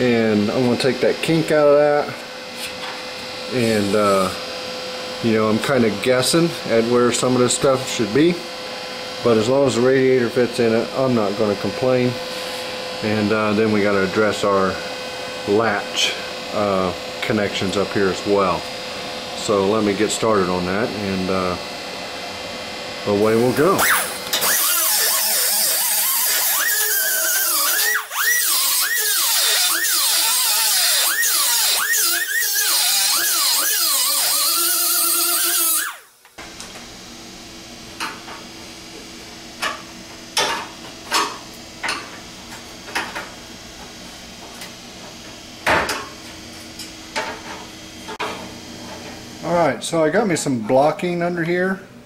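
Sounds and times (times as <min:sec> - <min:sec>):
pneumatic air drill whine: 0:00.0 - 0:04.4, 0:23.2 - 0:36.4.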